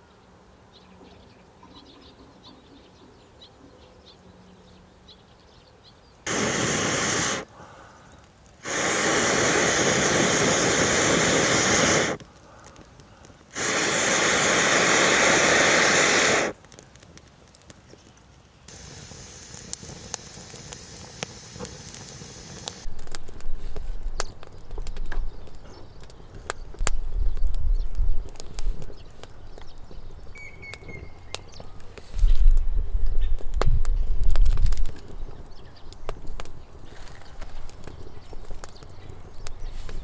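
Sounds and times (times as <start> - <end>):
crackles and sharp ticks: 6.2 - 40.0
steady hissing: 6.3 - 16.7, 18.7 - 25.0.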